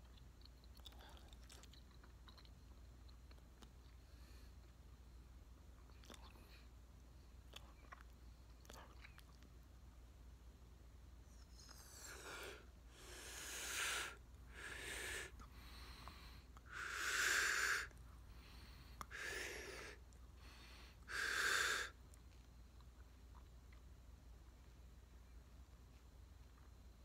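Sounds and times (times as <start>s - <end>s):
person breathing hard: 11.8s - 22.0s.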